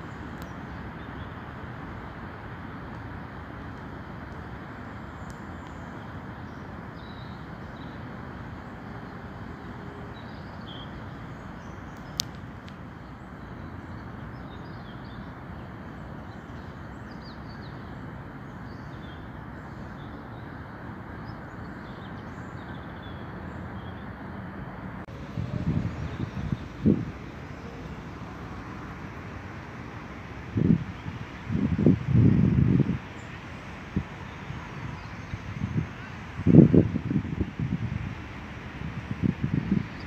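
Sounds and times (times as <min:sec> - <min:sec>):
distant traffic hum: 0:00.0 - 0:40.0
small birds chirping: 0:10.1 - 0:20.6.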